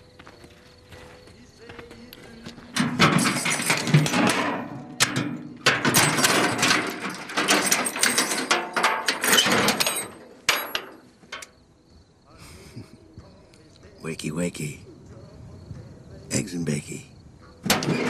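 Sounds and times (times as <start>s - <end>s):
mechanical clattering and rattling: 2.8s - 11.5s, 17.7s - 18.0s.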